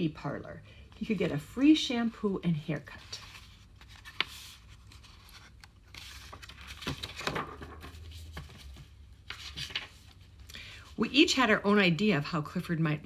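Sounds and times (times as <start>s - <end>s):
book rustling: 0.9s - 10.5s.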